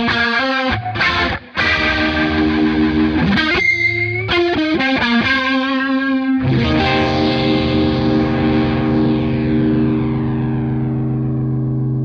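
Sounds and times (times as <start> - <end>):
overdriven electric guitar chords: 0.0 - 12.0.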